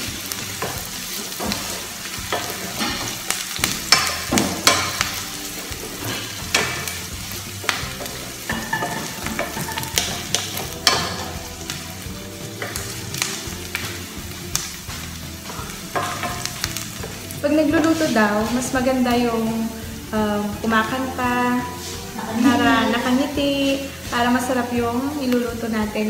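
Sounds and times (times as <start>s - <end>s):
wooden spatula scraping a pan: 0.0s - 11.4s
onions sizzling in a pan: 0.0s - 26.0s.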